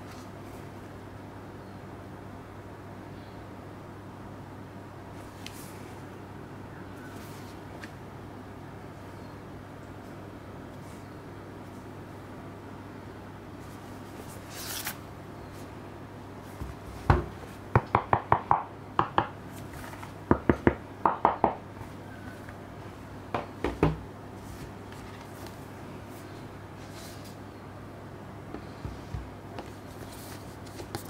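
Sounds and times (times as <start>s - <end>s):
cardboard sliding rustle: 29.0s - 31.0s.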